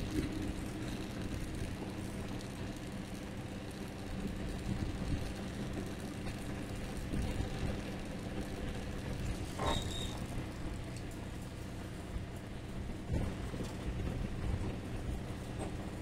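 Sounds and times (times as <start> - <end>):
low motor drone: 0.0 - 16.0
brief squeak: 9.6 - 10.3.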